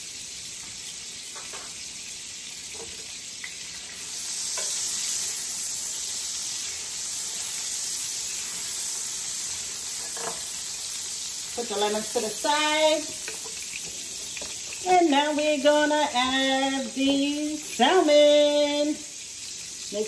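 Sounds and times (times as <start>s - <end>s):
lemon slices sizzling in oil: 0.0s - 20.0s
spatula moving food in pan: 2.7s - 18.3s.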